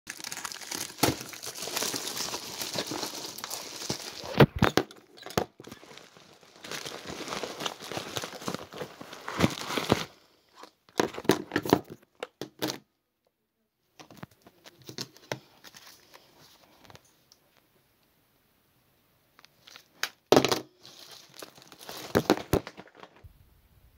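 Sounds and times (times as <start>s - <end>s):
plastic packaging crinkling: 0.1s - 10.2s, 19.4s - 20.2s, 20.8s - 23.3s.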